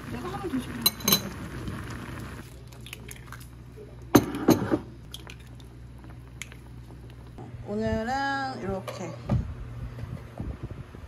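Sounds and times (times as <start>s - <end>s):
broth bubbling in pot: 0.0s - 4.2s, 4.9s - 7.4s
eggs cracking: 5.0s - 7.4s.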